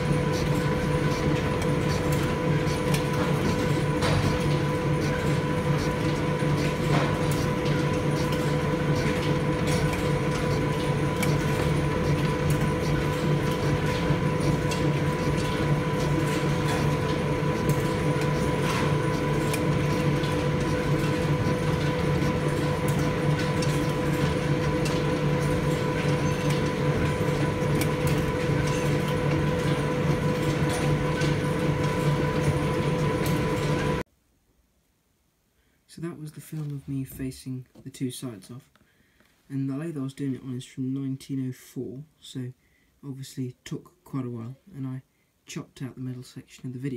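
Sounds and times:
lathe running: 0.0s - 34.0s.

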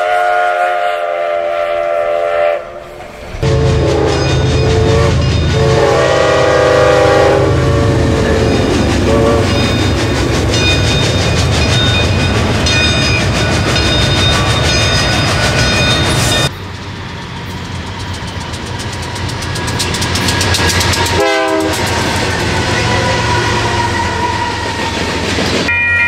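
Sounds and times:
train horn: 0.0s - 9.6s, 20.8s - 25.0s
train rumble: 0.0s - 26.0s
wheels clattering over rail joints: 8.1s - 23.0s.

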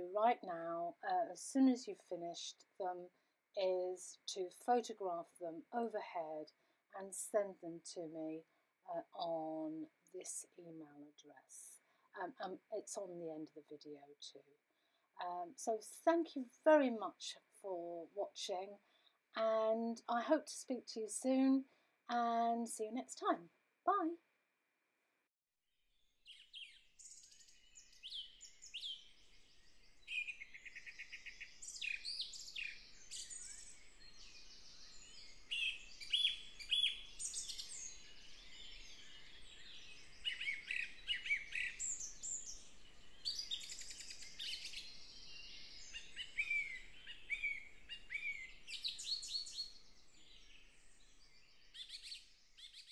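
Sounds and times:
songbirds singing: 26.2s - 52.9s.

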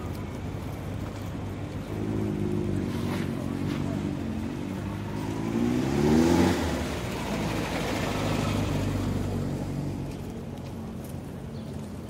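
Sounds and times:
traffic noise: 0.0s - 12.0s
vehicle accelerating past: 1.8s - 10.2s.

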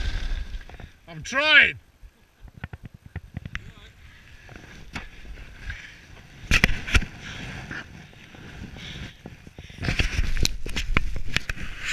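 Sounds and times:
sled runners scraping over snow: 4.1s - 11.9s.

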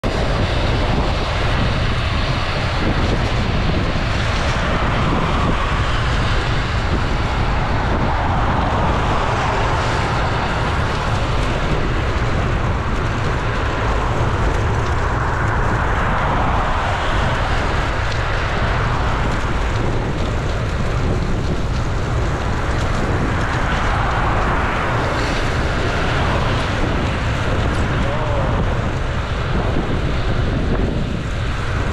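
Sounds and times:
wind buffeting microphone: 0.0s - 31.9s
car tyres hissing on wet road: 0.2s - 31.9s.

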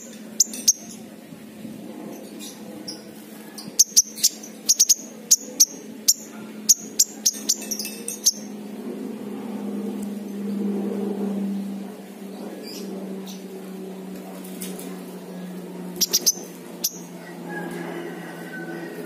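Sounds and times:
bird chip calls: 16.0s - 17.1s.

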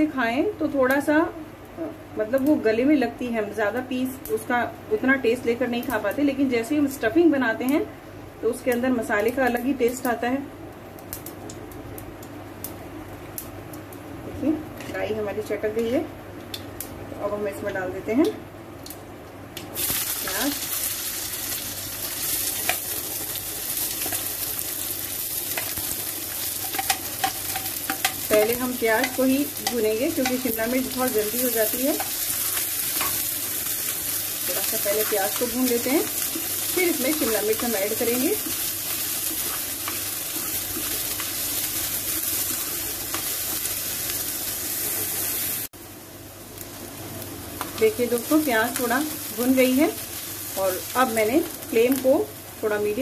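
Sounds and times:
onion sizzling in hot oil: 19.7s - 53.0s
steel spoon clicking on pan: 26.6s - 30.6s.

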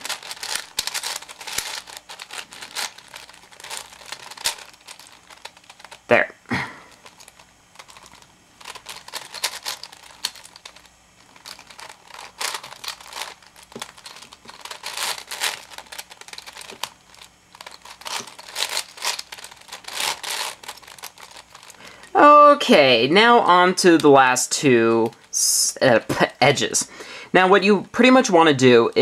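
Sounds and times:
puzzle cube clicking and scraping: 0.0s - 6.1s, 6.9s - 22.0s.

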